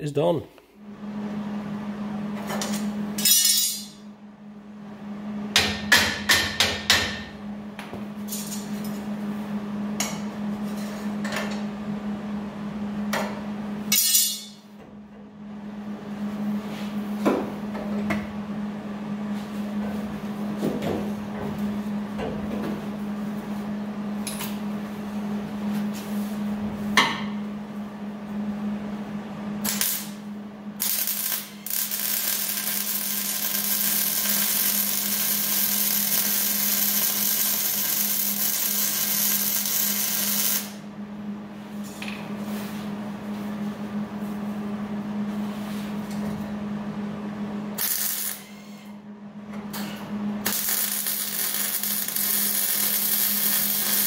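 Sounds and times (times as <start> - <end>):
welding arc crackling hiss: 29.6 - 30.2, 30.8 - 40.8, 47.8 - 48.6, 50.4 - 54.0.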